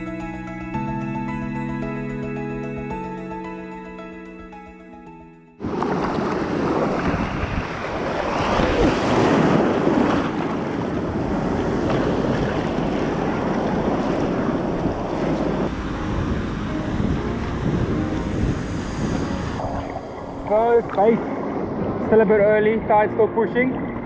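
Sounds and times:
ocean surf breaking: 5.6 - 22.9
wind buffeting microphone: 5.6 - 24.0.

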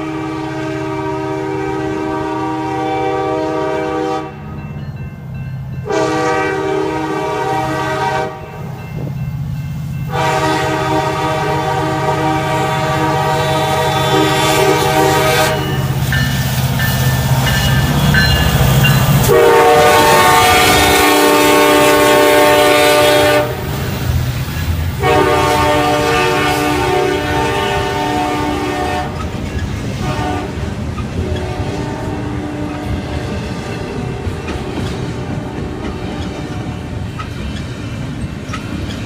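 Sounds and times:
locomotive air horn blasts: 0.0 - 4.4, 5.8 - 8.6, 10.1 - 16.0, 19.2 - 23.9, 25.0 - 29.3, 30.0 - 36.7
train wheels clattering on rails: 8.6 - 11.2, 13.2 - 39.0.

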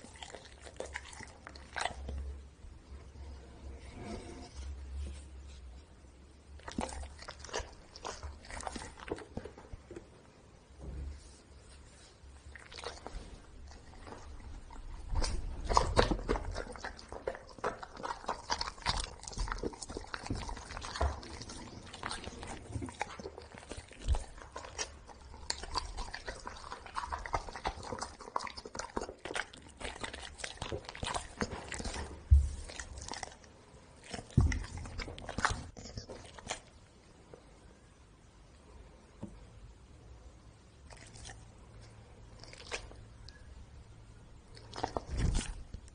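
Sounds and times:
dog chewing and licking: 0.0 - 2.4, 6.6 - 10.0, 12.5 - 36.7, 44.5 - 45.9.

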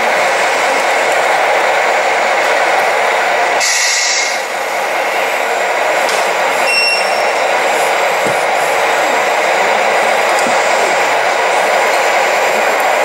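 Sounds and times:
hydraulic pump hiss and whirr: 3.6 - 13.0.

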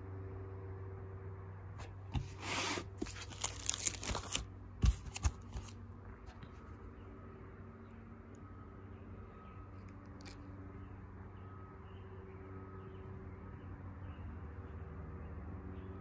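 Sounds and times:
low steady hum: 0.0 - 16.0
plastic album sleeves crinkling: 2.2 - 5.8.

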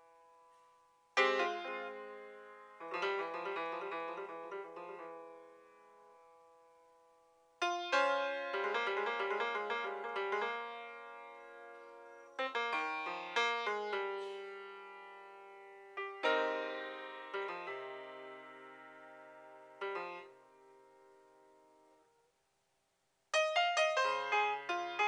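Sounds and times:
grand piano chords and flurries: 1.2 - 22.0.

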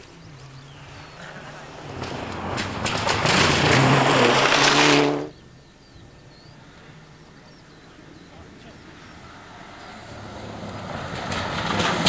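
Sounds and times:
gravel spraying: 0.0 - 5.4
rally car engine racing past: 0.6 - 5.4, 8.5 - 12.0.

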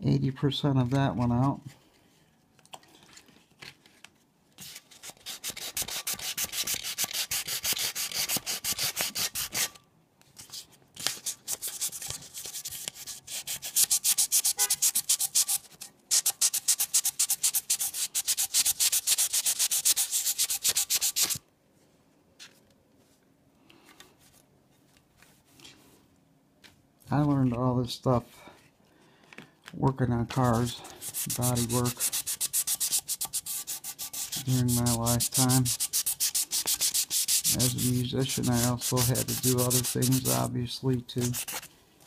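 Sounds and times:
sandpaper rubbing on metal: 5.2 - 9.7, 11.5 - 21.4, 30.5 - 40.5, 41.2 - 41.7.

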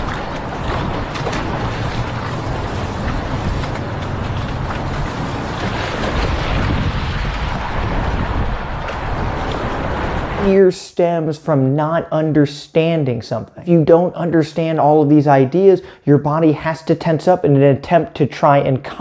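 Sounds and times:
water splashing against hull: 0.0 - 10.5
wind buffeting microphone: 0.0 - 10.6.

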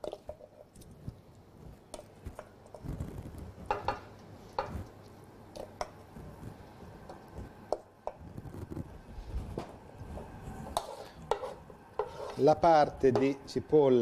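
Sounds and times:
spoon scraping metal saucepan: 10.6 - 13.4.

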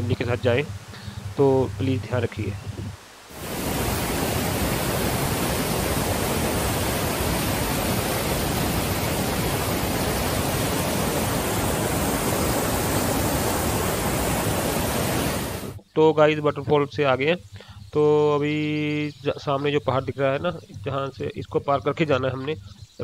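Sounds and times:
waterfall rushing: 3.3 - 15.8.

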